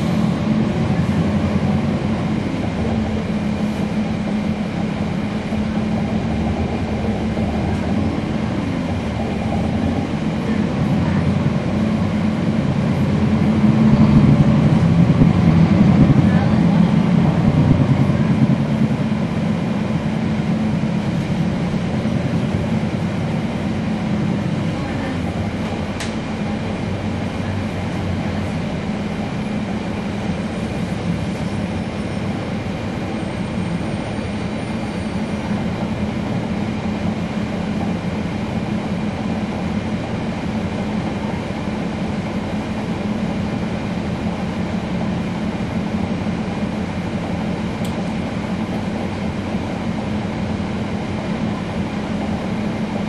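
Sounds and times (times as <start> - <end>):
bus diesel engine droning: 0.0 - 53.0
road noise: 0.0 - 53.0.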